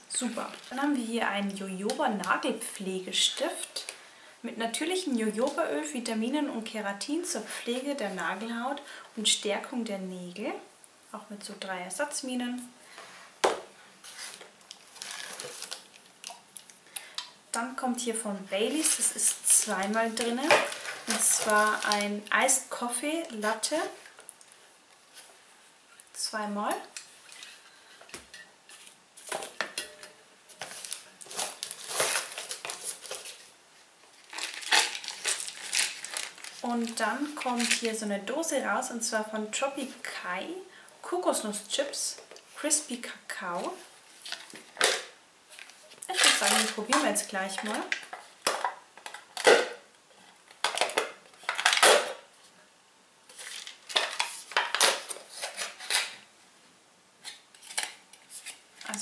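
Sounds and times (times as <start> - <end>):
packaging rustling: 14.0 - 17.3, 18.7 - 22.5, 27.0 - 38.0, 44.0 - 52.3, 53.3 - 56.2, 57.2 - 59.0
foil seal tearing and crinkling: 14.2 - 16.7, 19.6 - 22.2, 30.6 - 33.5, 34.1 - 37.9, 50.5 - 52.2, 53.3 - 56.2, 57.2 - 59.0.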